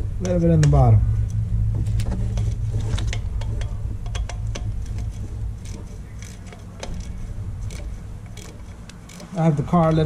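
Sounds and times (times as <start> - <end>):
steady low hum: 0.0 - 10.0
hand ratchet clicking: 2.4 - 10.0.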